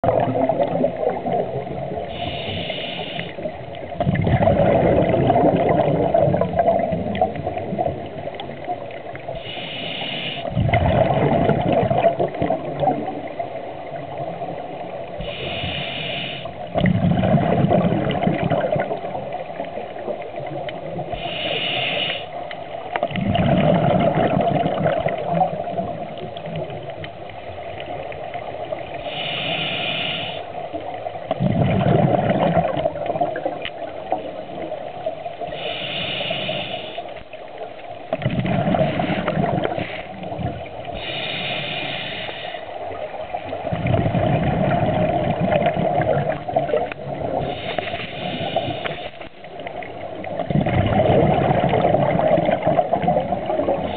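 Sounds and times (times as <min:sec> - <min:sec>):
exhaled air bubbling: 0:00.0 - 0:53.9
regulator inhale hiss: 0:02.0 - 0:03.6, 0:09.3 - 0:10.5, 0:15.2 - 0:16.7, 0:21.1 - 0:22.4, 0:28.9 - 0:30.7, 0:35.4 - 0:37.3, 0:38.9 - 0:40.2, 0:40.9 - 0:42.9, 0:47.4 - 0:49.4.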